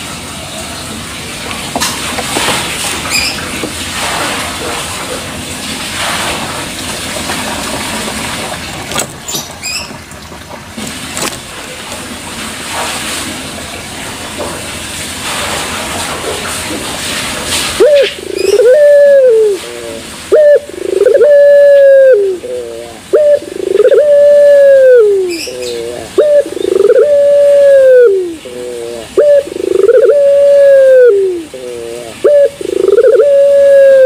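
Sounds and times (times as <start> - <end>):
steady noise: 17.5 - 34.0
dove cooing: 17.7 - 34.0.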